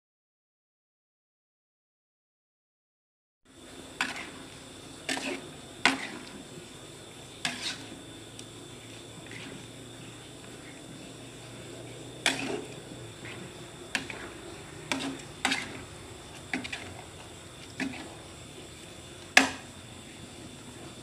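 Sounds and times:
utensil scraping metal pan: 5.1 - 6.3, 7.4 - 8.0, 12.2 - 17.0, 17.7 - 18.2.

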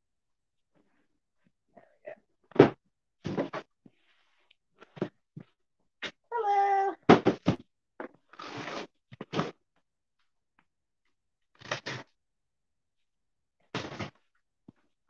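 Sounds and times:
cat meowing: 6.3 - 7.0
box cutter scraping tape: 8.3 - 9.6, 11.6 - 12.1.

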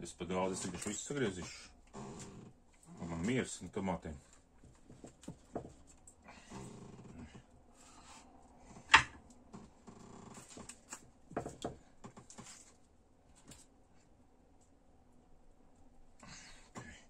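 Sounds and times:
rustling and small knocks: 4.2 - 7.5, 8.6 - 13.8.

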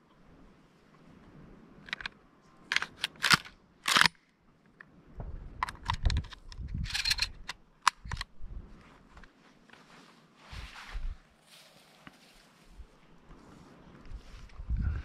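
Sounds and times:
low rumble of handling or wind: 0.0 - 15.0
crunching steps on dry dirt: 8.6 - 13.4.

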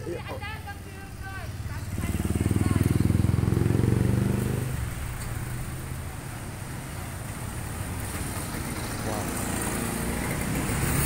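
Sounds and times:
low rumble of traffic: 0.0 - 11.0
vehicle engine passing close: 1.6 - 6.2, 7.5 - 11.0.

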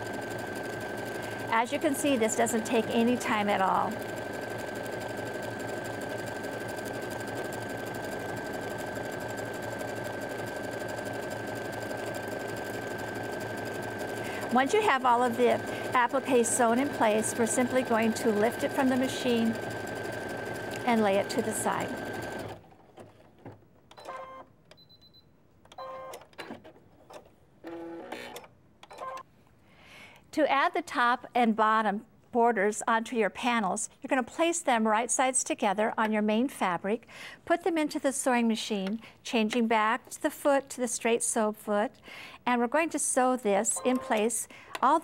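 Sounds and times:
sewing machine stitching: 0.0 - 23.2.

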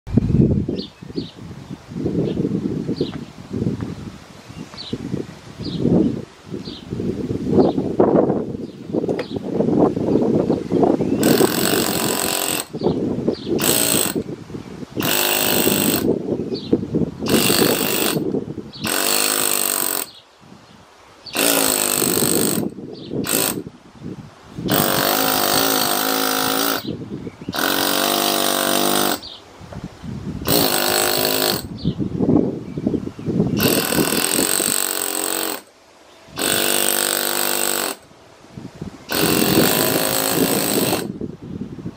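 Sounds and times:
pneumatic chisel hammering stone: 11.2 - 12.8, 13.6 - 14.3, 15.0 - 16.2, 17.3 - 20.2, 21.4 - 23.7, 24.7 - 29.4, 30.5 - 31.7, 33.6 - 35.7, 36.4 - 38.1, 39.1 - 41.2.

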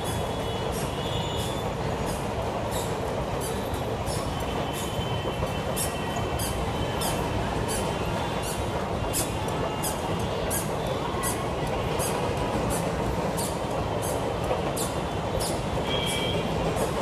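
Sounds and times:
faint high wheel squeal: 0.0 - 11.3, 14.8 - 16.9
train rumble: 0.0 - 17.0
wheels clicking over rail joints: 0.0 - 17.0.

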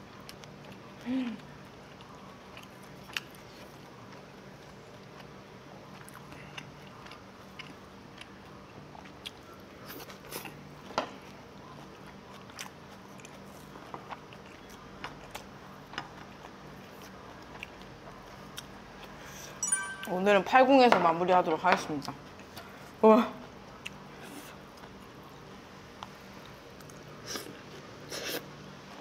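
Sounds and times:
low steady hum: 0.0 - 29.0.

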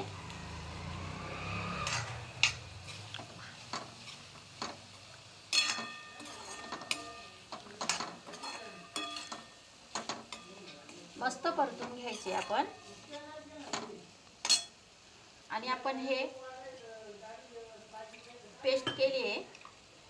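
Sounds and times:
light sizzle: 0.0 - 20.0
spoon clinking against metal pan: 5.5 - 10.8, 11.8 - 13.1, 13.7 - 14.7.

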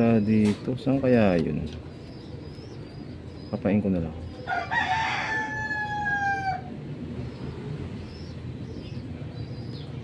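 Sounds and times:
rooster crowing: 4.5 - 6.7.

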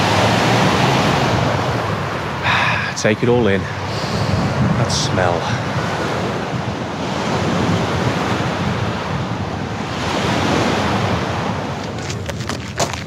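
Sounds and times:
waves washing onto rocky shore: 0.0 - 13.0
wind buffeting microphone: 0.0 - 13.0
footsteps on gravel: 11.7 - 13.0.

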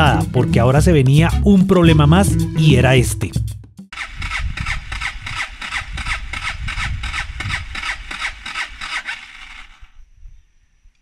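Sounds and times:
motorcycle starter cranking engine: 3.9 - 10.0.

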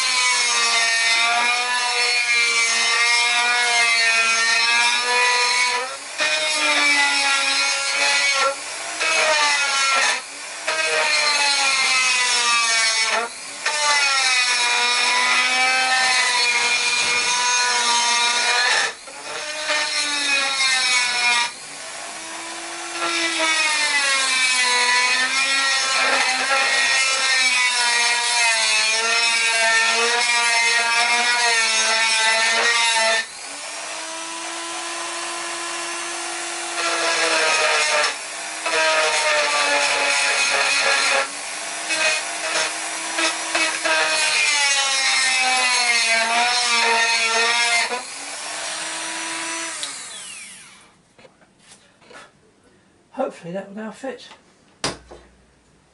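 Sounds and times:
rotary tool grinding metal: 0.0 - 21.6, 22.2 - 50.9.

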